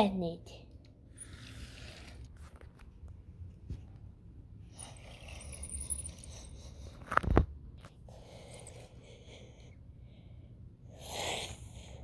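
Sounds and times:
toy trains scraping on carpet: 1.2s - 2.6s.

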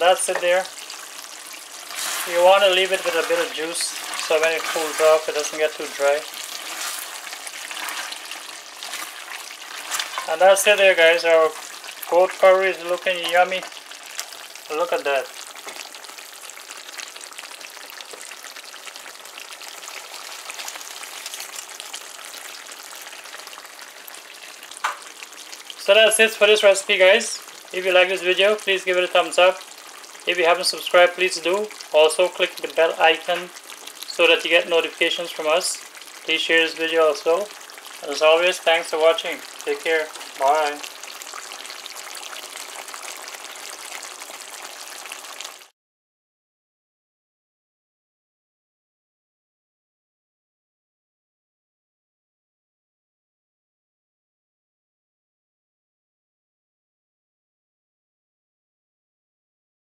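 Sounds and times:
curry sizzling in metal pot: 0.0s - 45.7s.

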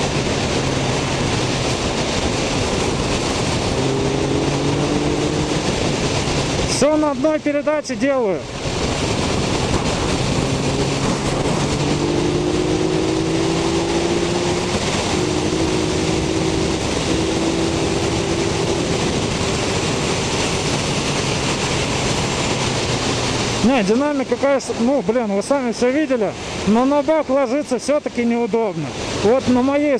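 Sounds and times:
motorcycle engine: 0.0s - 6.8s, 8.4s - 23.7s
wind rushing over microphone: 0.0s - 29.9s.

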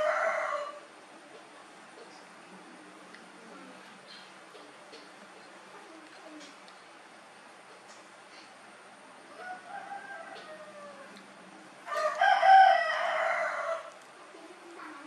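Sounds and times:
rooster crowing: 0.0s - 0.9s, 9.3s - 11.2s, 11.8s - 14.0s.

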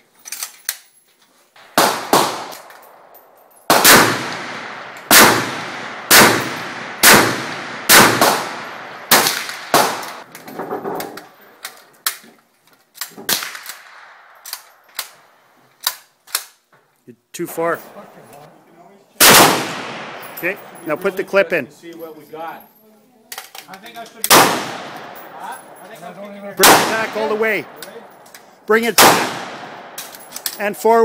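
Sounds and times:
rifle shots with echo: 1.6s - 10.3s, 13.2s - 15.2s, 19.2s - 21.0s, 24.2s - 25.8s, 26.6s - 30.5s.

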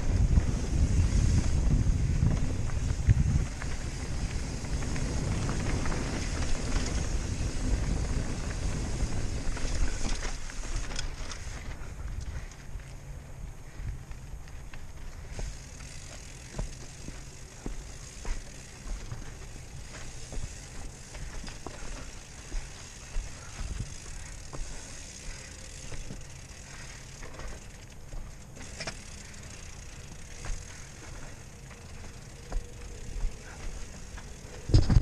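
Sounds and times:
bike knocking and rattling on rocks: 0.0s - 13.0s, 13.7s - 35.0s
steady low rumble: 0.0s - 35.0s
tyres crunching over dirt and stones: 13.7s - 35.0s.

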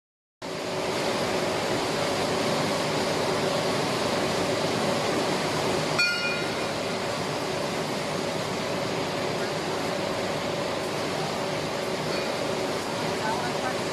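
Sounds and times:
steady machinery noise: 0.4s - 13.9s
sharp metallic clink: 6.0s - 6.6s.

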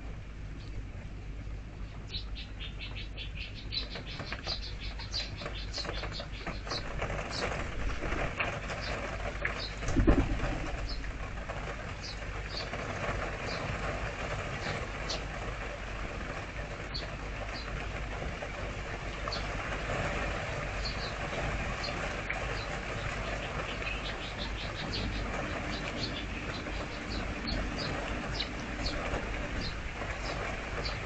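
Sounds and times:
steady rain: 0.0s - 31.0s
small bird chirping: 1.8s - 7.6s
pigeon flapping wings: 5.8s - 15.6s.

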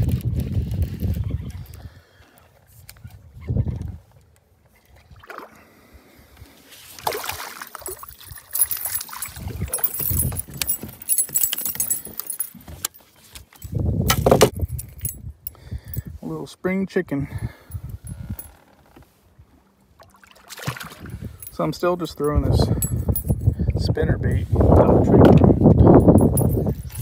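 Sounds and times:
metal lure rattling on plastic deck: 7.8s - 16.0s, 21.4s - 21.6s, 22.2s - 23.5s, 25.9s - 27.0s
low thumps of handling: 8.6s - 15.2s.

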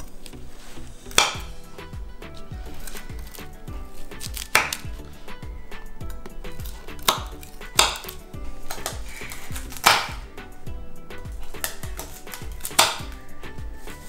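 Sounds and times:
background music with steady beat: 0.0s - 14.0s
knife crunching through brittle: 2.6s - 5.1s, 6.5s - 10.2s.

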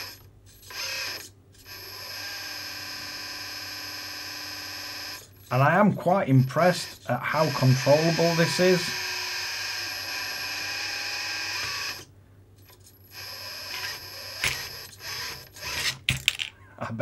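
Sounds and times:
hydraulic pump whining: 4.7s - 12.1s, 12.7s - 16.1s.

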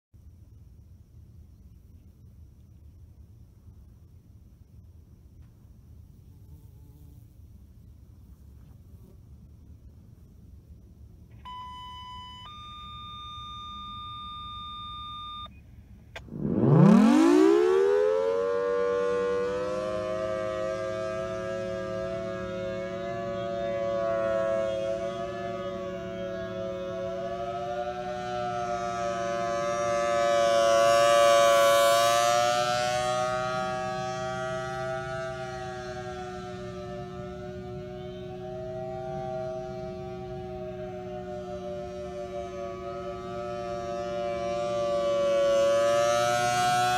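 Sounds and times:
civil defence siren wailing: 11.3s - 15.5s, 16.2s - 46.9s
two short steady tones: 11.4s - 15.5s.

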